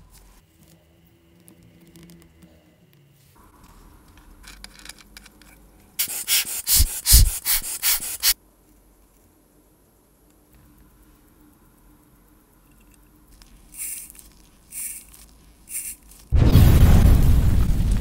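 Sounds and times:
faint handling noises: 8.5s - 9.6s, 12.3s - 16.3s.

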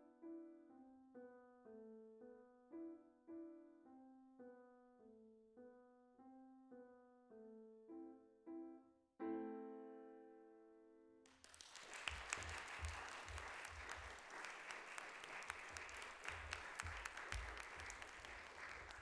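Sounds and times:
audience applause: 11.3s - 19.0s.

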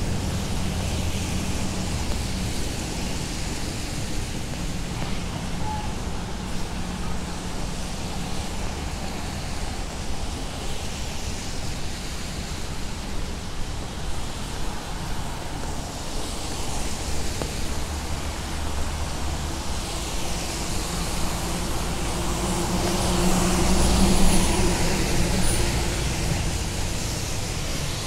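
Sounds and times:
low traffic rumble: 0.0s - 28.0s
rainfall hiss: 0.0s - 28.0s
tyres hissing on wet road: 0.0s - 28.0s.

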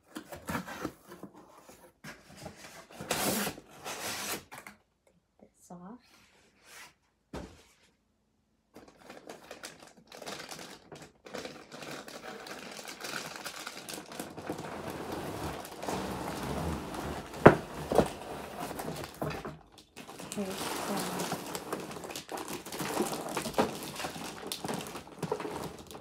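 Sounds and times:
packaging rustling and crinkling: 8.8s - 26.0s.

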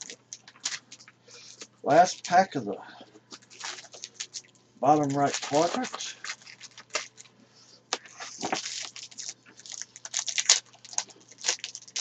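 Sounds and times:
foil wrapper tearing and crinkling: 0.0s - 2.4s, 3.4s - 7.3s, 7.9s - 12.0s.

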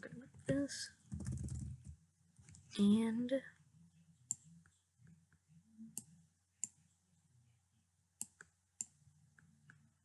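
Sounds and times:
computer mouse clicking: 8.2s - 9.9s.

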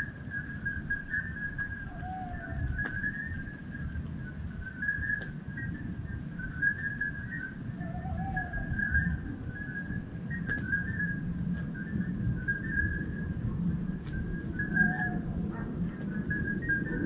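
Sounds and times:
high whistle-like animal calls: 0.0s - 5.8s, 6.4s - 13.4s, 14.2s - 17.0s
steady low rumble: 0.0s - 17.0s
lower animal call: 1.1s - 3.7s, 6.6s - 11.3s, 14.3s - 17.0s.

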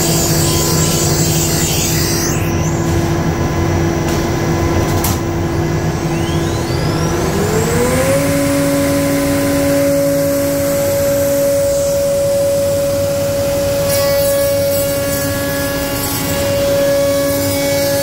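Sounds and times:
router spindle whine: 0.0s - 4.8s, 5.4s - 18.0s
cutting and dust extraction roar: 5.4s - 18.0s.

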